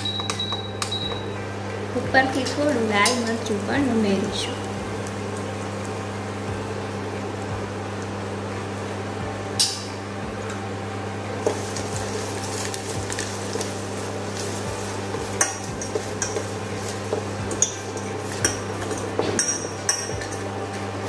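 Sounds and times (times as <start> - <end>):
food frying in hot oil: 0.0 - 9.0, 11.4 - 21.0
low steady hum: 0.0 - 21.0.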